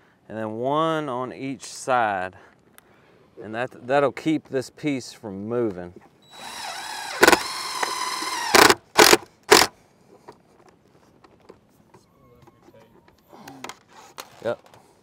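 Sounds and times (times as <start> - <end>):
cordless drill driving screw: 6.3 - 9.7.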